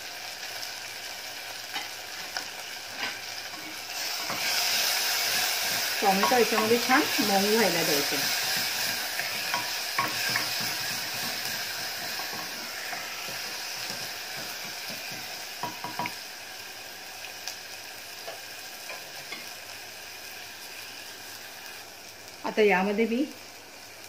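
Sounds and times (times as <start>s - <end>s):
onion and tomato sizzling in oil: 0.0s - 24.0s
wooden spatula knocking on pot: 13.2s - 16.2s.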